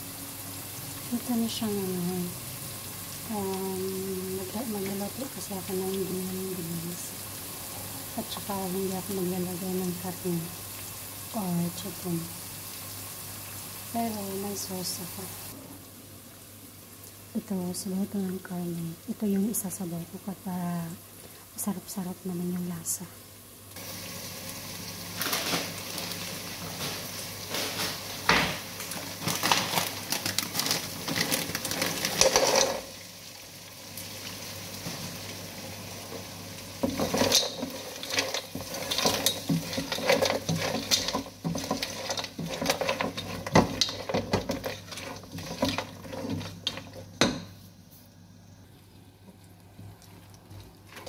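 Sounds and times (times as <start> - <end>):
spatula scraping a pot: 36.9 - 47.1.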